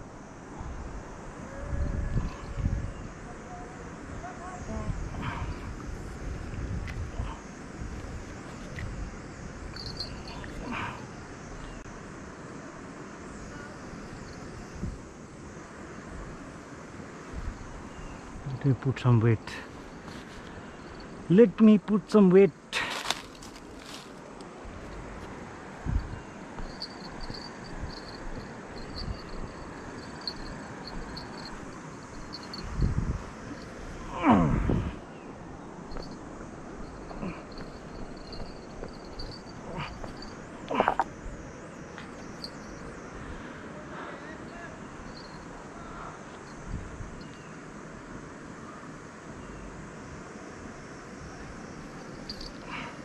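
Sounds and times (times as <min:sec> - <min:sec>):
wind on microphone: 0:00.0 - 0:10.8, 0:14.5 - 0:15.1, 0:24.6 - 0:35.1, 0:46.5 - 0:47.2
insect chirping: 0:00.0 - 0:53.0
river rushing: 0:22.2 - 0:41.1.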